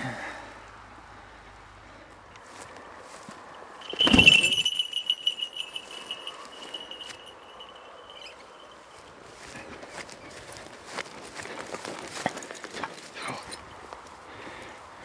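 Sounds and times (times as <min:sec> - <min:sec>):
small metal bell jingling: 0:03.8 - 0:09.1.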